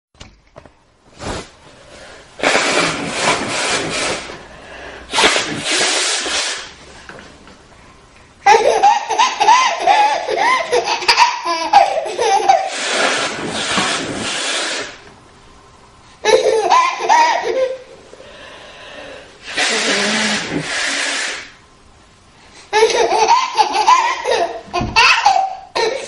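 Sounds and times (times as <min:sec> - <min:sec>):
noisy nose blow: 0:01.1 - 0:06.9, 0:12.4 - 0:15.1, 0:17.1 - 0:21.6.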